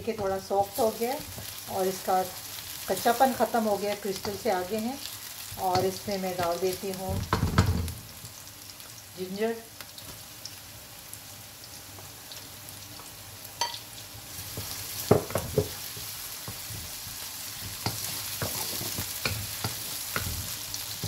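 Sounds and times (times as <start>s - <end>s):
onions sizzling in oil: 0.0s - 21.0s
wooden spatula scraping a pan: 15.6s - 20.8s.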